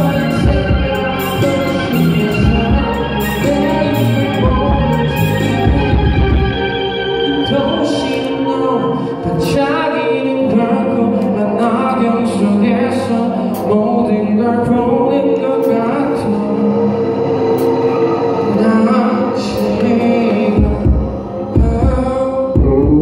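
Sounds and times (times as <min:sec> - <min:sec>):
drums: 0:00.0 - 0:06.7, 0:19.4 - 0:23.0
bass guitar: 0:00.0 - 0:09.9
electric guitar: 0:00.0 - 0:23.0
man singing: 0:00.0 - 0:23.0.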